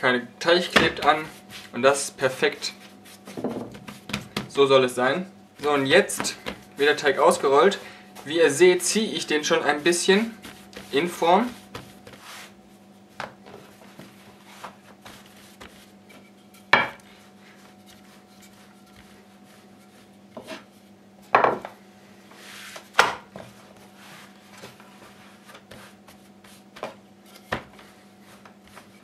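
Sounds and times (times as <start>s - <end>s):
steady low hum: 0.0s - 29.0s
rolling pin rolling dough: 0.6s - 4.6s, 5.5s - 20.9s, 22.3s - 29.0s
wooden knocks: 3.4s - 4.5s.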